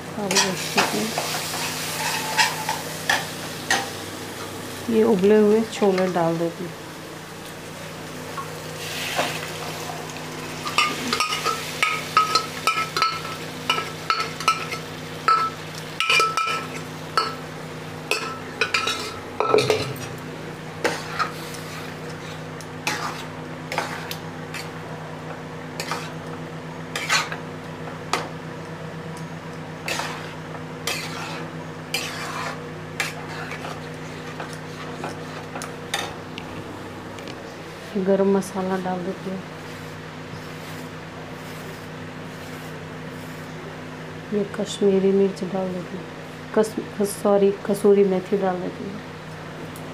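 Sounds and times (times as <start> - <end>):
faint sizzling: 0.2 - 36.5
metal spoon clinking and scraping pan: 0.3 - 3.8, 10.7 - 17.4, 18.1 - 20.1, 30.9 - 33.8.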